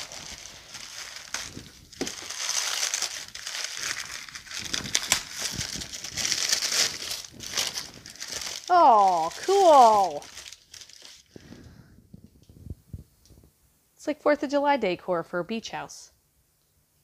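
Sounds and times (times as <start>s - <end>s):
packing paper crinkling: 0.0s - 11.7s.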